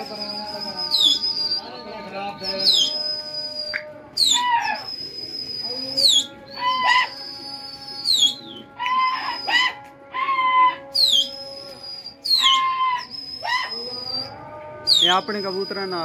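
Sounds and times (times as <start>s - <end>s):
loud swooping whistles: 2.5s - 6.4s.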